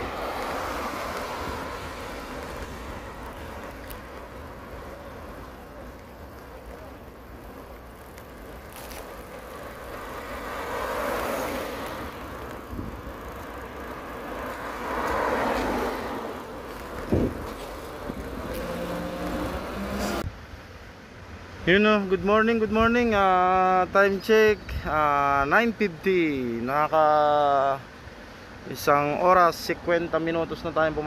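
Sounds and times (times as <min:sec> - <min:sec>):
cars passing: 0:00.0 - 0:22.2.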